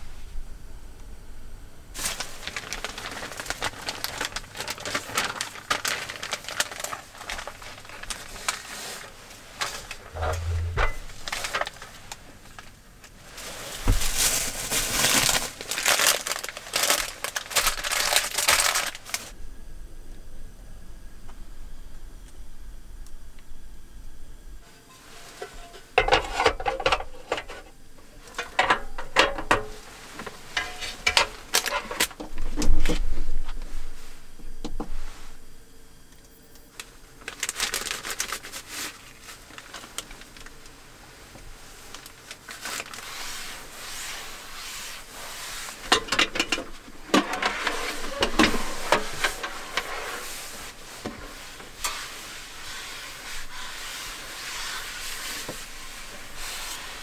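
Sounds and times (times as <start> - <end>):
plastic bags crinkling: 2.0 - 19.4, 30.2 - 32.2, 36.7 - 40.8, 41.9 - 51.5.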